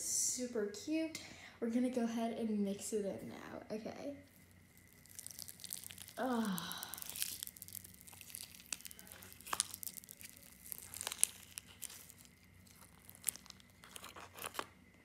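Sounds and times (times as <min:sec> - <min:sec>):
slime crackles and clicks: 0:04.8 - 0:14.7.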